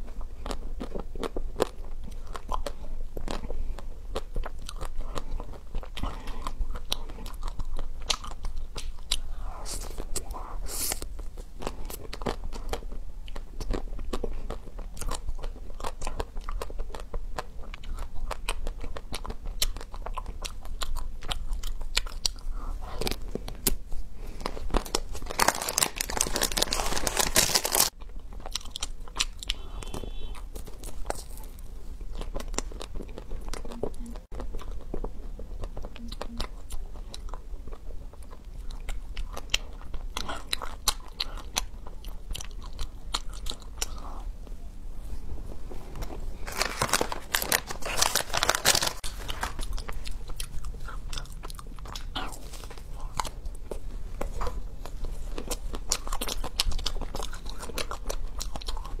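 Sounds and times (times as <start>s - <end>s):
chocolate shell crunching: 24.4s - 44.0s, 46.0s - 59.0s.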